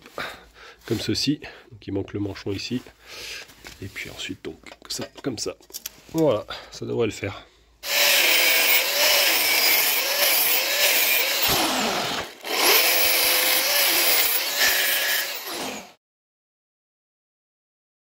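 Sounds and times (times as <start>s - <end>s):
angle grinder cutting metal pipe: 7.8s - 16.0s.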